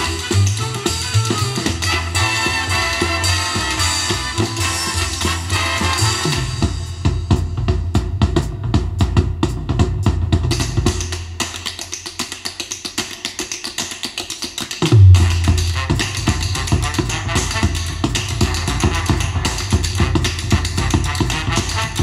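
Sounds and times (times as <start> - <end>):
bass line: 0.0 - 9.2, 14.9 - 22.0
swing music over loudspeakers: 0.0 - 22.0
tap-dance percussion strokes: 0.0 - 22.0.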